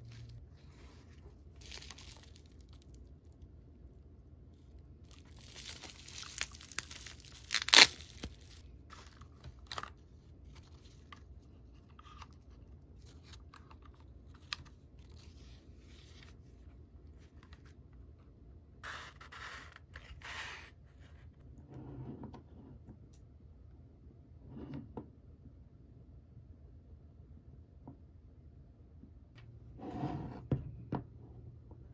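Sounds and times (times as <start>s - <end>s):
plastic wrapping crinkling: 1.6s - 3.1s, 5.1s - 9.8s
sharp plastic crackle: 1.6s - 3.1s, 5.0s - 8.6s.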